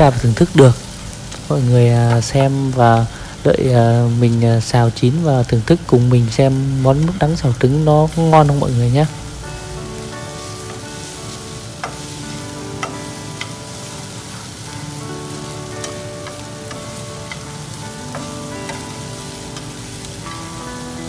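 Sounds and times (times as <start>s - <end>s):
food sizzling in a frying pan: 0.0s - 21.0s
soft background music: 0.0s - 21.0s
chopsticks clicking against pan: 1.2s - 3.1s, 15.7s - 20.0s.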